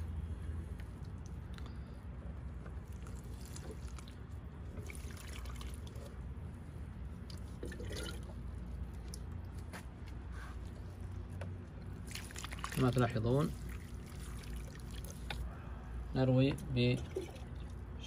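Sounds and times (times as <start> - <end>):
steady low hum: 0.0 - 18.0
liquid trickling onto soil: 2.7 - 9.6, 11.8 - 15.5.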